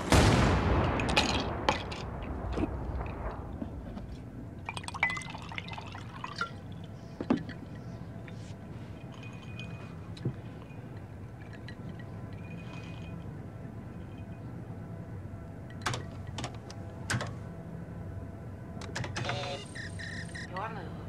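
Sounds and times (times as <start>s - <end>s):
low room hum: 0.0s - 21.0s
ice clinking in glass: 4.7s - 7.7s.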